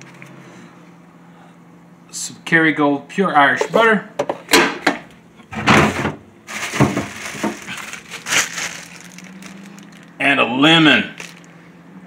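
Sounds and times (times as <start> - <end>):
low steady hum: 0.0 - 12.0
plastic bag crinkling: 6.5 - 10.2, 11.0 - 11.5.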